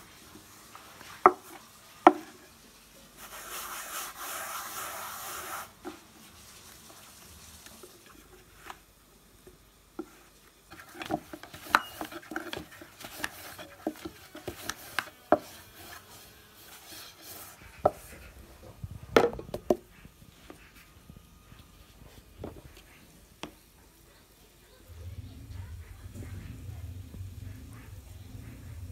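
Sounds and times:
rolling pin knocking on wooden board: 19.1s - 19.9s.

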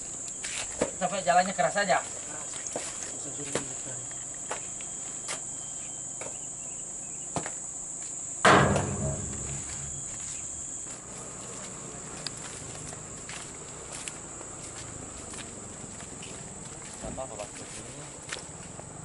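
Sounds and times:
insects shrilling: 0.0s - 18.3s
loud thump: 8.4s - 10.2s.

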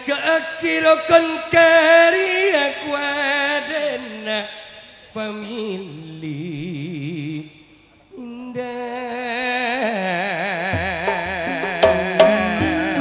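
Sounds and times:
man singing into microphone: 0.0s - 13.0s
low drum strokes: 10.8s - 13.0s.

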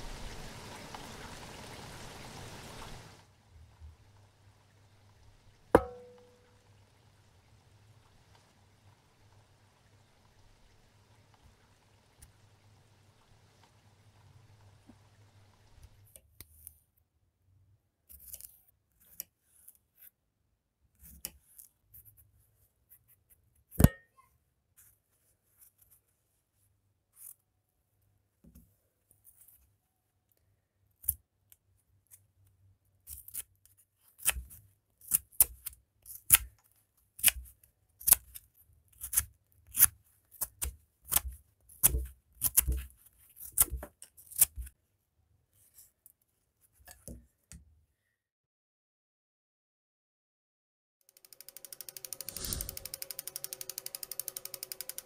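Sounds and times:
sharp knock: 5.8s - 6.3s
knife cutting cucumber: 18.1s - 19.8s, 33.1s - 36.6s, 37.2s - 44.7s
knife shaving wooden stick: 18.1s - 20.2s, 21.0s - 22.3s, 27.1s - 27.5s, 31.0s - 32.3s, 33.0s - 44.8s, 51.4s - 55.0s.

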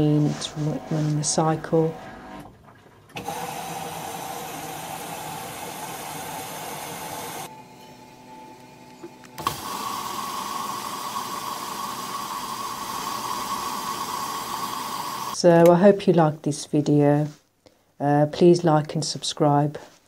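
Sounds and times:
washing machine running: 0.0s - 15.4s.

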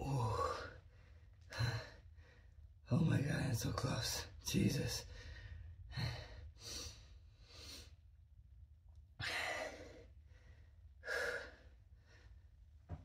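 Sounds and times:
man breathing hard and sighing: 0.1s - 2.5s, 9.2s - 12.4s.

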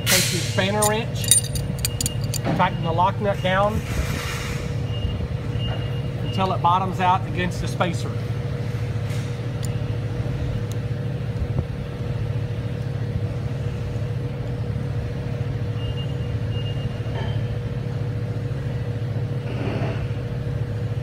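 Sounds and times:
machinery humming with pitched tone: 0.0s - 21.0s
faint metal clicks of wrench: 0.8s - 2.4s.

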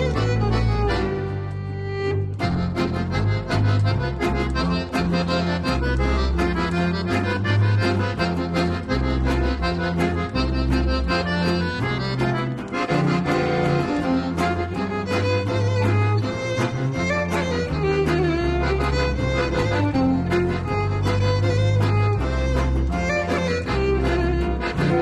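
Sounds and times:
instrumental music with beat: 0.0s - 25.0s.

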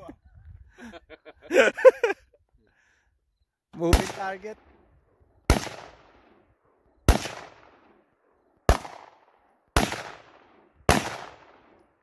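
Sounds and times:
gunshots with echo: 3.8s - 4.9s, 5.5s - 11.8s.

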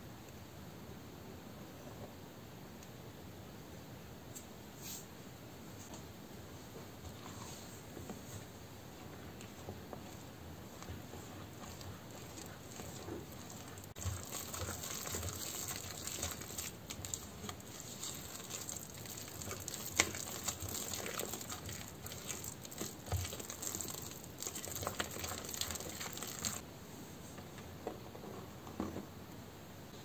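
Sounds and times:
spoon scraping dough: 8.4s - 26.6s.

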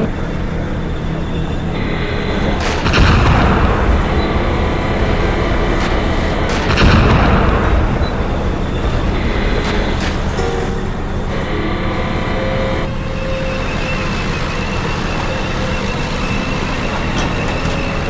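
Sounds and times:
tank engine rumble: 0.0s - 18.0s
cannon booms: 1.8s - 11.4s.

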